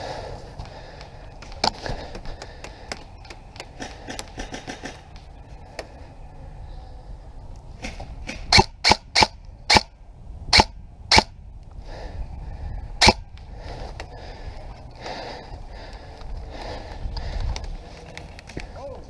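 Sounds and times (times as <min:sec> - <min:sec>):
airsoft rifle shots: 0:03.8 - 0:05.0, 0:07.8 - 0:09.9, 0:10.5 - 0:11.3, 0:13.0 - 0:13.2.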